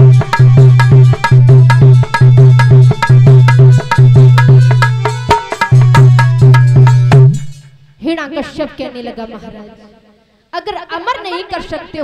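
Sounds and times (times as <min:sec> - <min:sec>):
fast drum rhythm: 0:00.0 - 0:07.6.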